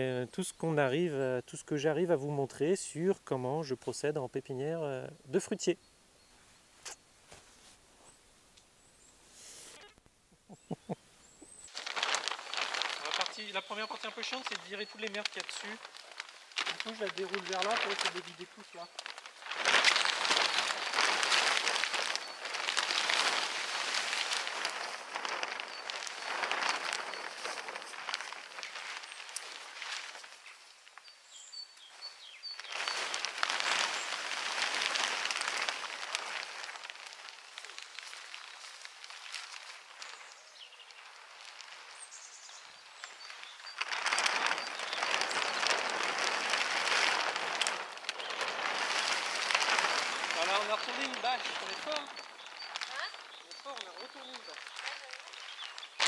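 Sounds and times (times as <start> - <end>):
plastic tarp crackling and rustling: 11.5 - 56.0.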